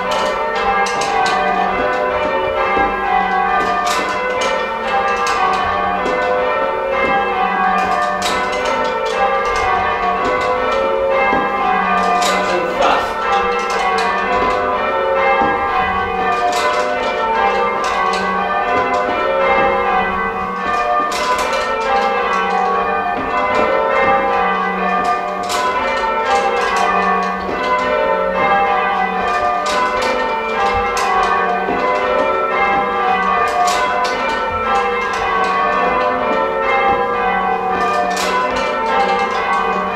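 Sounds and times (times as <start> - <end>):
church bells change ringing: 0.0 - 39.9.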